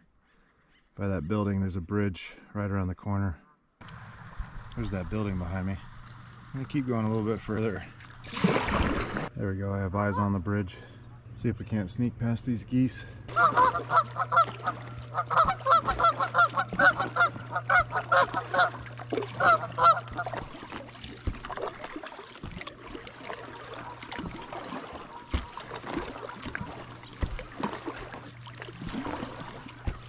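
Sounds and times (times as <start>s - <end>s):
geese honking: 13.3s - 20.9s.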